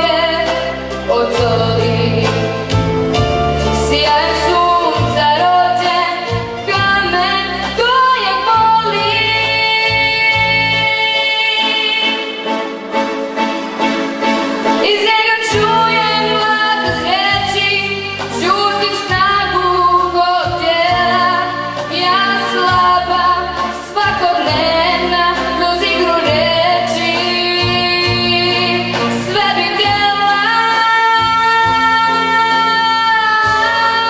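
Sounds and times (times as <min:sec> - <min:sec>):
steady bass line: 0:00.0 - 0:10.8
girl singing into microphone: 0:03.8 - 0:12.2, 0:14.8 - 0:34.0.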